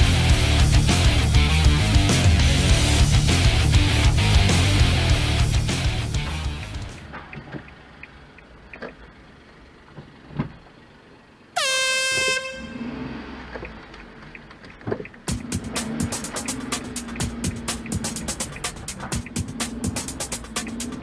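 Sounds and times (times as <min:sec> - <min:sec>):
music: 0:00.0 - 0:07.1, 0:15.3 - 0:21.0
horn blast: 0:11.6 - 0:13.3.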